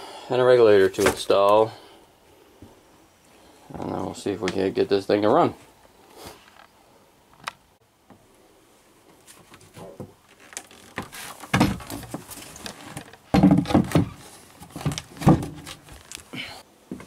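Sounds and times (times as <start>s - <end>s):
wooden hatch panels knocking: 13.3s - 14.2s.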